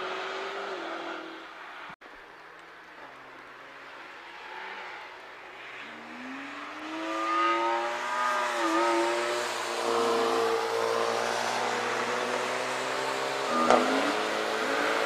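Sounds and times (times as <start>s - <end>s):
racing car engines accelerating: 3.7s - 15.0s.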